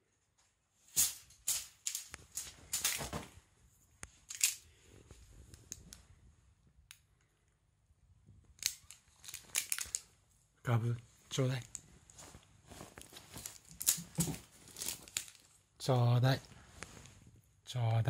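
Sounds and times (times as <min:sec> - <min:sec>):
crinkly cat toy crackling: 0:08.7 - 0:10.1, 0:11.6 - 0:15.6.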